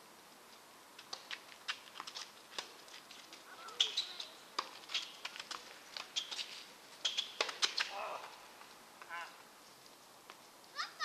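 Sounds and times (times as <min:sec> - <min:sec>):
birds chirping: 0:03.5 - 0:06.4.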